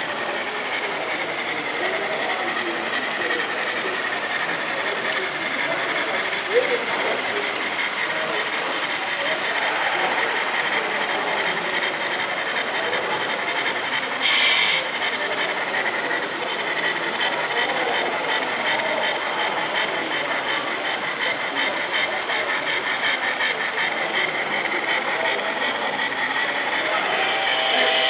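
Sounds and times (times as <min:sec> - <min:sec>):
busy hall background noise: 0:00.0 - 0:28.0
steam chuffing and hiss: 0:00.0 - 0:28.0.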